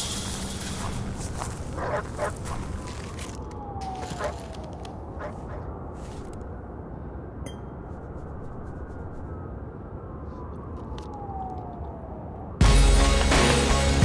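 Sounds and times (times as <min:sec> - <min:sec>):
low rumbling ambience: 0:00.0 - 0:14.0
loud music with heavy bass: 0:12.6 - 0:14.0.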